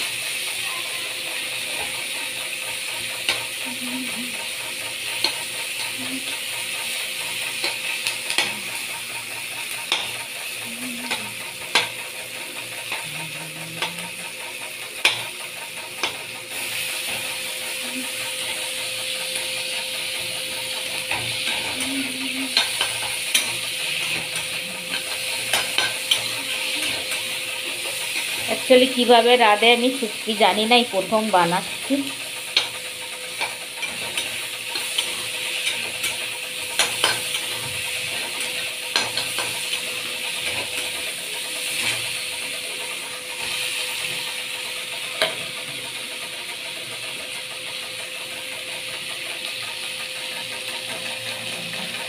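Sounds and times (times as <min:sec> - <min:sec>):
fish sizzling in oil: 0:00.0 - 0:13.1, 0:13.9 - 0:52.0
spatula scraping wok: 0:00.0 - 0:46.7
spatula clicking against pan: 0:05.1 - 0:06.0, 0:07.6 - 0:08.8, 0:09.6 - 0:10.2, 0:11.1 - 0:12.0, 0:15.0 - 0:16.3, 0:22.5 - 0:23.6, 0:24.2 - 0:26.3, 0:32.4 - 0:40.9.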